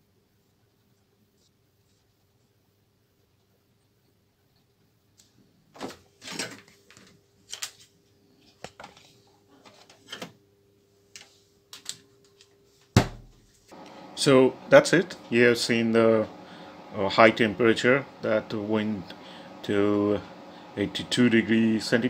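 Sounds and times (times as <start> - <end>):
faint steady hum: 0.0 - 22.0
clicks and rustling in freezer: 5.8 - 7.9
heavy thump: 13.0 - 13.4.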